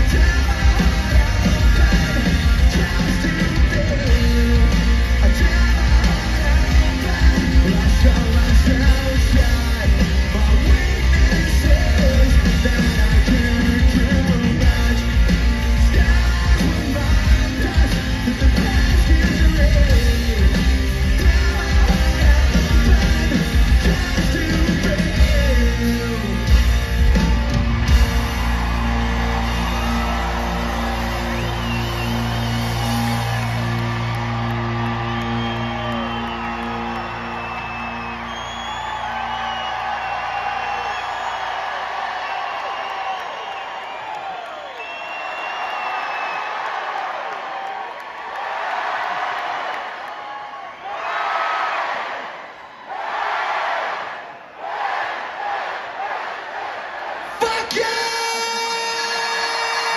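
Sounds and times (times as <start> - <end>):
person singing: 0.0 - 26.7
guitars: 0.0 - 41.6
drums: 0.0 - 47.7, 57.3 - 59.9.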